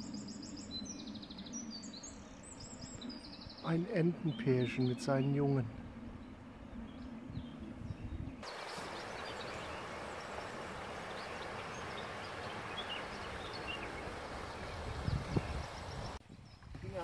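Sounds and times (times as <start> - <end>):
birds chirping: 0.0 - 17.0
river water rushing: 8.4 - 16.2.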